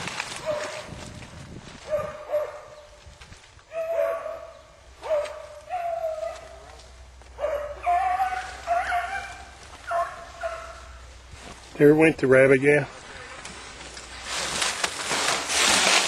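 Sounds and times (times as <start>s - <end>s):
dogs baying: 1.9s - 2.8s, 3.7s - 11.0s.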